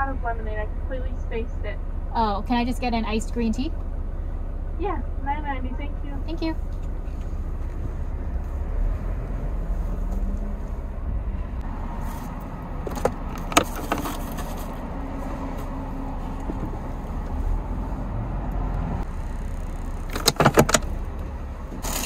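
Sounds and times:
car engine and road rumble: 0:00.0 - 0:22.0.

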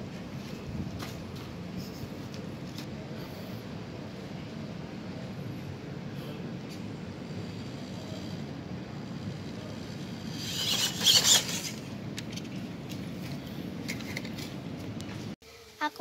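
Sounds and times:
toy truck motor and gears whirring: 0:07.2 - 0:12.5.

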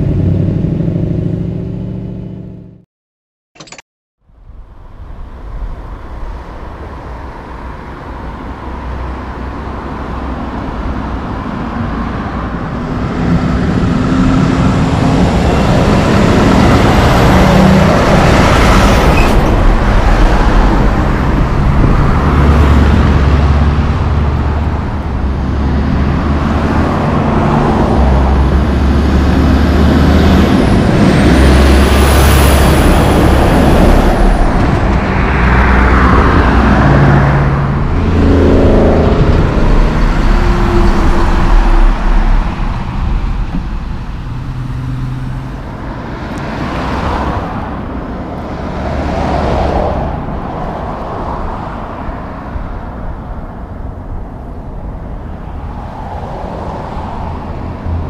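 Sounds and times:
trucks driving past: 0:04.3 - 0:58.0.

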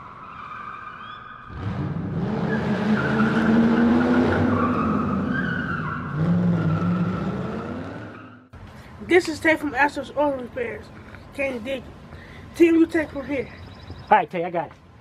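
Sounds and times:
tires squealing: 0:00.0 - 0:08.5
engine revving: 0:01.5 - 0:08.5.

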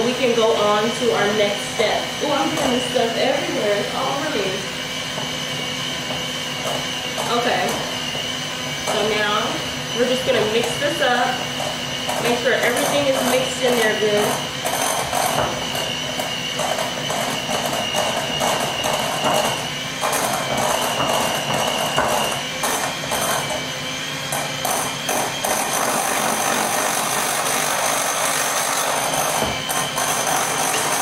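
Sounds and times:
electric hand mixer whirring: 0:00.0 - 0:31.0
beaters clattering in bowl: 0:10.0 - 0:26.4, 0:28.8 - 0:31.0.

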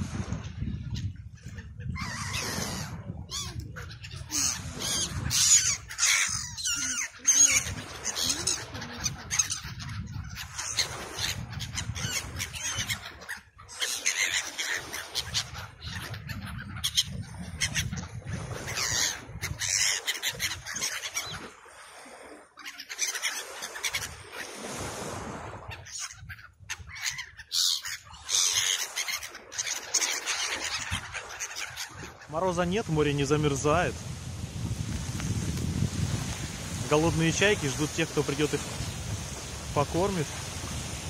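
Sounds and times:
gulls calling: 0:00.8 - 0:34.2, 0:35.0 - 0:41.0.

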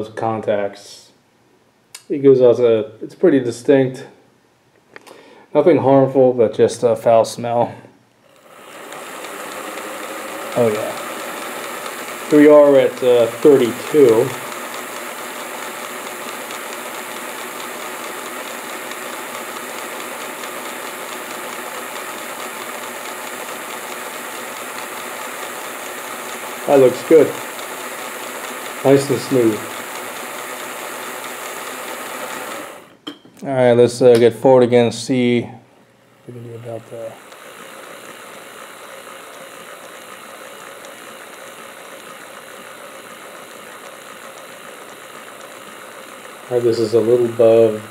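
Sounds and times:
model locomotive mechanical whir: 0:08.3 - 0:32.9, 0:36.3 - 0:47.9.

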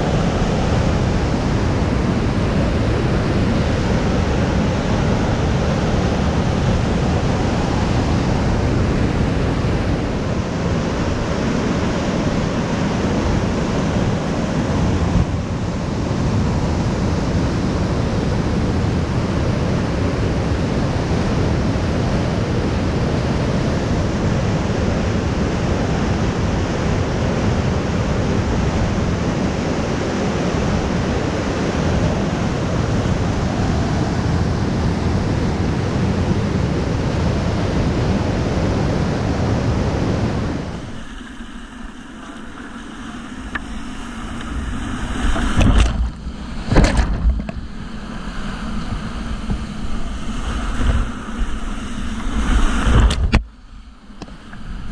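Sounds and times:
whitewater roaring over rocks: 0:00.0 - 0:54.9.

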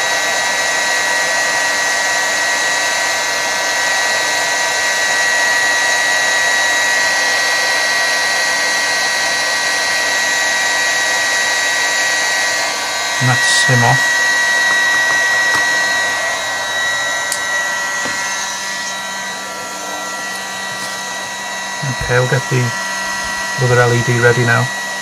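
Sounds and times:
heat gun fan hiss: 0:12.1 - 0:25.0
high whine: 0:12.5 - 0:25.0.

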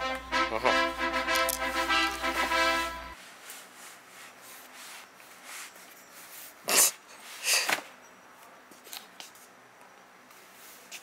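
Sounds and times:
background music: 0:00.0 - 0:03.2.

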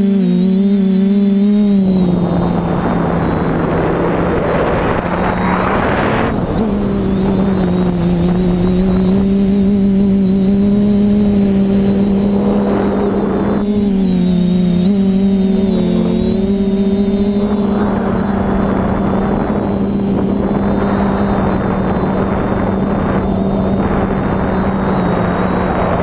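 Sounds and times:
quadcopter motors droning: 0:00.0 - 0:26.0
rushing noise: 0:01.8 - 0:09.6.

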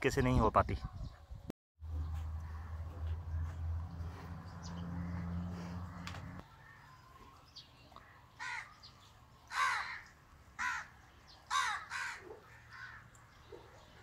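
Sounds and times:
crow cawing: 0:02.4 - 0:03.4, 0:05.0 - 0:07.0, 0:08.0 - 0:08.8, 0:09.5 - 0:13.1.

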